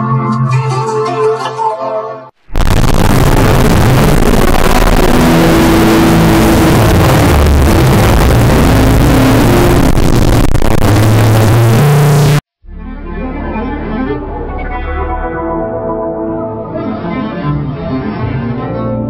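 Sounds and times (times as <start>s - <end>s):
heavily distorted logo music: 2.5s - 17.2s.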